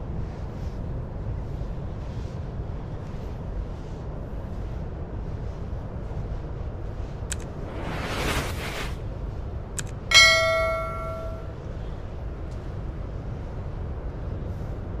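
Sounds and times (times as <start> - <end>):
low background rumble: 0.0 - 15.0
bright bell ding: 10.1 - 11.6.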